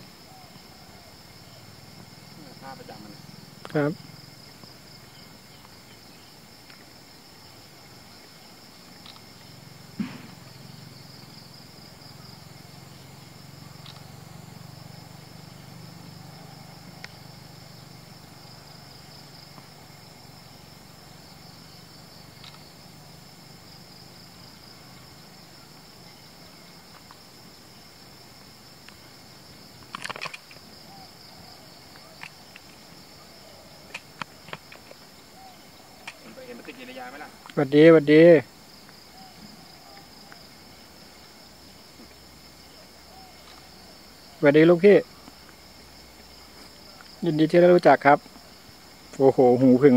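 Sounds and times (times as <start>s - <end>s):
insects chirring: 0.0s - 49.9s
sharp clicks: 13.8s - 14.1s, 22.4s - 22.6s.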